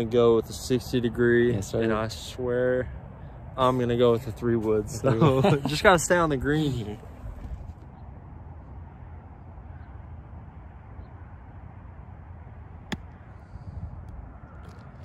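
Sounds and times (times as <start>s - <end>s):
golf club striking ball: 12.9s - 13.2s.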